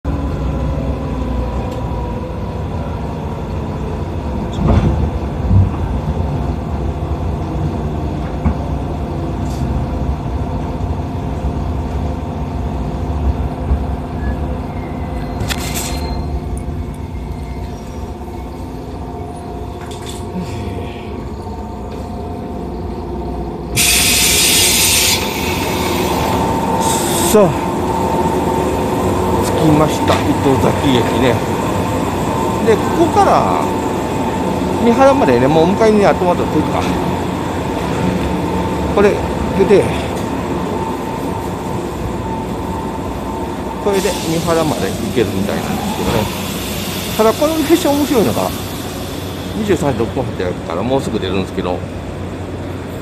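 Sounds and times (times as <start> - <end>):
train equipment hum: 0.0 - 53.0
air hiss: 23.8 - 27.4, 45.7 - 49.8.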